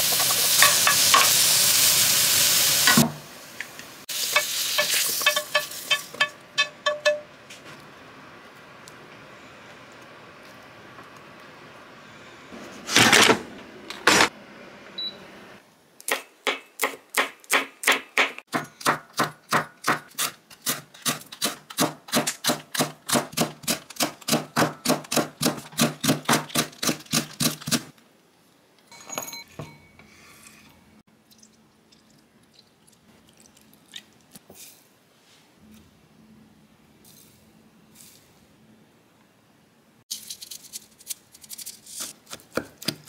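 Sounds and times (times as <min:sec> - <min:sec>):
faint clinks: 0:28.9 - 0:30.6.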